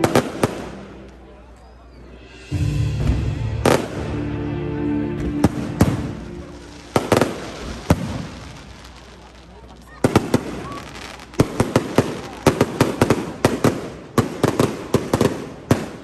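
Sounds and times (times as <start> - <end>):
fireworks bangs: 0.0 - 1.3, 2.0 - 4.2, 5.2 - 16.0
music: 0.0 - 7.3.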